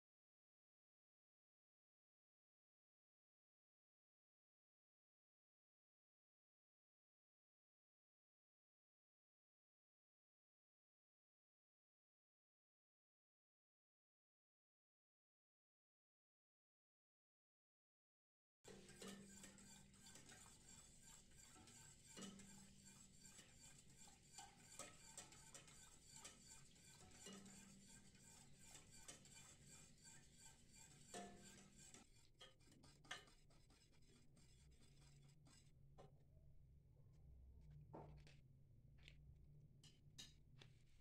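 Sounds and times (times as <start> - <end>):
whisk scraping a metal pot: 18.7 - 35.7.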